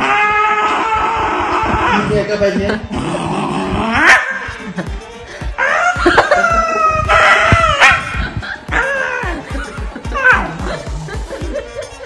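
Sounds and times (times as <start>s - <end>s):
dog screaming high-pitched: 0.0s - 2.2s, 3.9s - 4.5s, 5.6s - 8.1s.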